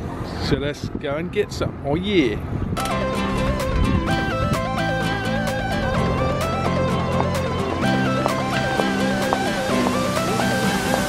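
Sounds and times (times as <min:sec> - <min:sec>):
melodic music with steady beat: 0:02.8 - 0:11.0.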